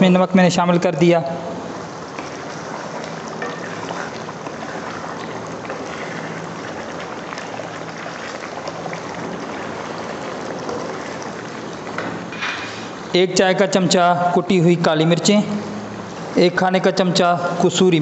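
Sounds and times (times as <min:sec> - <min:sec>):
curry bubbling in a pot: 0:01.6 - 0:14.0.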